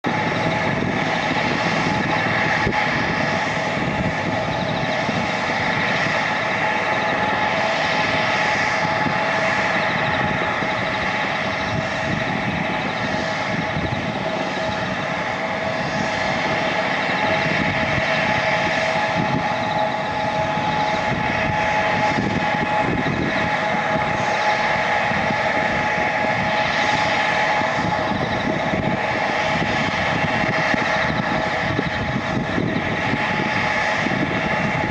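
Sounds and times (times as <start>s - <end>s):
jet engines idling whine: 0.0s - 34.9s.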